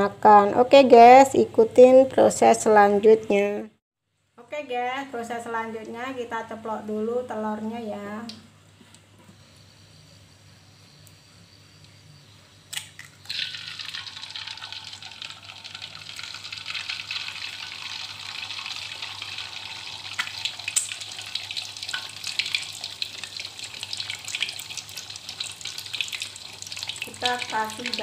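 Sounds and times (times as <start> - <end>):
egg frying in hot oil: 12.7 - 28.0.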